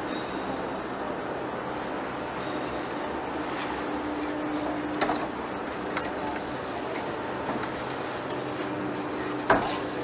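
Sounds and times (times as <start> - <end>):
continuous noisy haze: 0.0 - 10.0.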